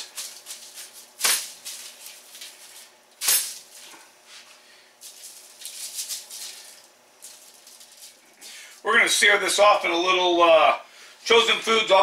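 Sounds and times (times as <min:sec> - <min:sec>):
paper rustling and crinkling: 0:00.0 - 0:03.0, 0:05.0 - 0:08.4
spice rub scratching: 0:05.0 - 0:08.6.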